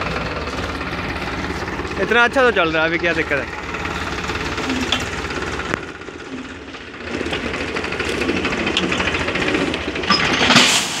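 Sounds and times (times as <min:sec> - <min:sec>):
tractor diesel engine working: 0:00.0 - 0:11.0
gravel tipping into metal trolley: 0:04.7 - 0:11.0.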